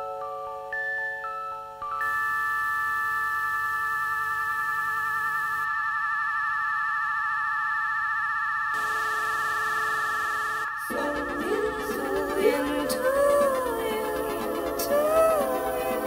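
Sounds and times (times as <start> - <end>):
held synthesizer chord: 8.8 - 16.0.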